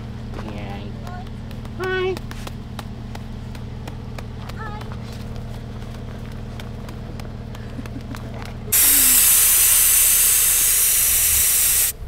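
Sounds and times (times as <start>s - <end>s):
steady low hum: 0.0s - 12.0s
loud even hiss: 8.7s - 12.0s.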